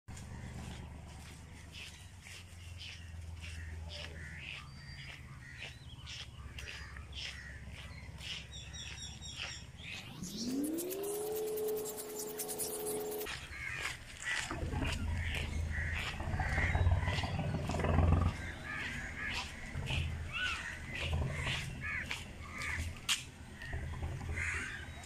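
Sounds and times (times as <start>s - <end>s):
steady low rumble: 0.2s - 25.0s
crows cawing: 2.8s - 8.5s, 13.1s - 25.0s
held electronic tone: 9.8s - 13.4s.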